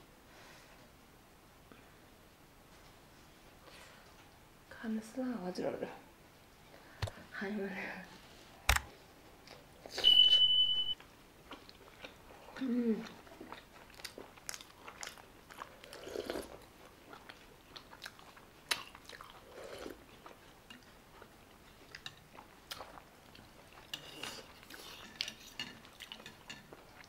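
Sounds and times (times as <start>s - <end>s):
person chewing: 11.5s - 27.0s.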